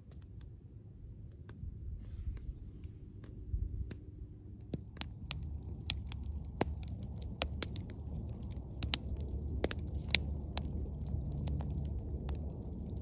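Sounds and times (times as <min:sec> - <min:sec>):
low steady rumble: 0:00.0 - 0:13.0
campfire crackling and popping: 0:04.6 - 0:13.0.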